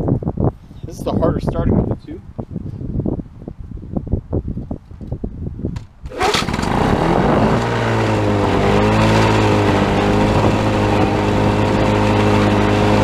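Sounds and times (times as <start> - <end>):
two-stroke mower engine running: 6.0 - 13.0.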